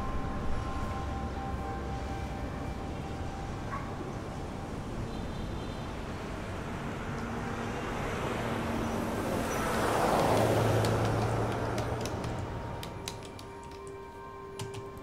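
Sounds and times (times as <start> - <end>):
street traffic: 0.0 - 15.0
vehicle passing close by: 6.6 - 12.6
computer keyboard typing: 10.0 - 15.0.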